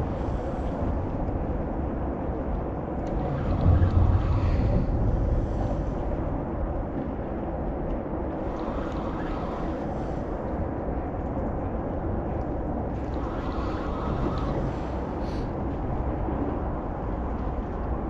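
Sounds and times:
low rumble: 0.0 - 8.7
wind on microphone: 0.0 - 18.0.

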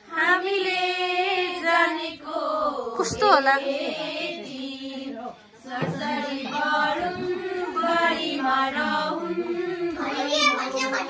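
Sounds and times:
women and girls singing: 0.0 - 11.0.

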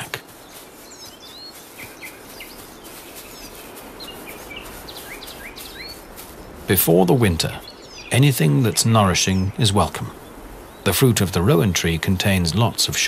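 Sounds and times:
songbirds chirping: 0.0 - 13.0
steady background hiss: 0.0 - 13.0.

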